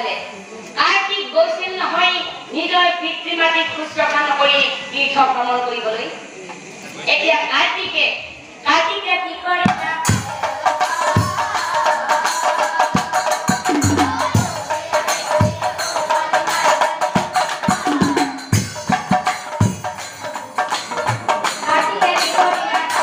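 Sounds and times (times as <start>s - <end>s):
voices singing: 9.8s - 19.6s
cymbals clattering: 10.4s - 23.0s
deep drum strokes: 12.9s - 16.6s
held tone: 13.7s - 14.8s.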